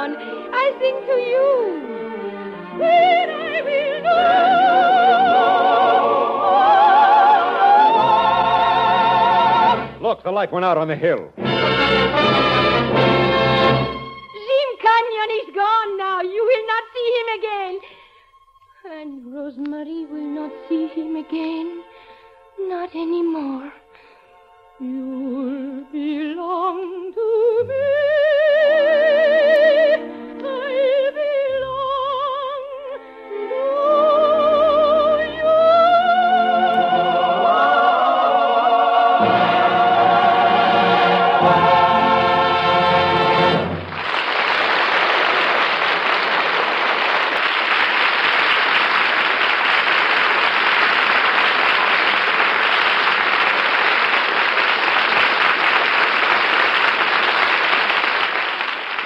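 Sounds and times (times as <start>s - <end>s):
operatic soprano singing: 0.0s - 10.0s, 18.8s - 21.9s, 22.6s - 23.8s, 24.8s - 43.6s
orchestral accompaniment: 0.0s - 15.8s, 18.1s - 44.4s
audience applause: 43.8s - 59.0s.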